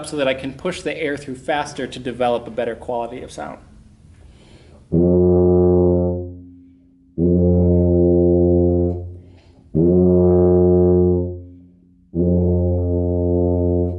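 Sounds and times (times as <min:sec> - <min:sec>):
tuba playing long low notes: 0:04.8 - 0:13.9.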